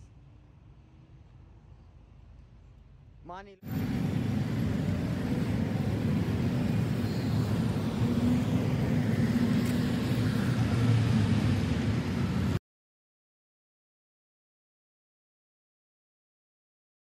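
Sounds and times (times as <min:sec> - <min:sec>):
cars driving past: 0:03.6 - 0:12.6.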